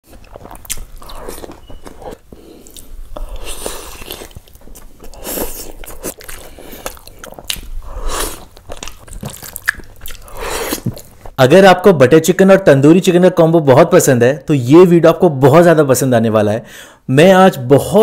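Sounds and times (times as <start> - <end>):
person biting and chewing food: 0.0 - 11.4.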